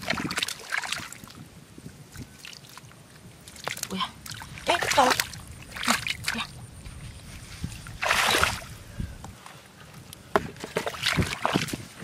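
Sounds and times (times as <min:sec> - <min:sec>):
sloshing in muddy water: 0:00.0 - 0:09.0, 0:10.4 - 0:12.0
water splash: 0:08.0 - 0:08.7.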